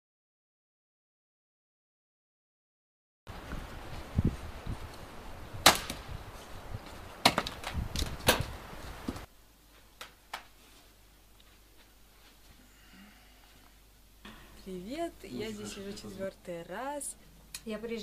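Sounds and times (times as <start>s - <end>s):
axe chopping firewood: 5.6s - 6.0s, 7.2s - 8.5s.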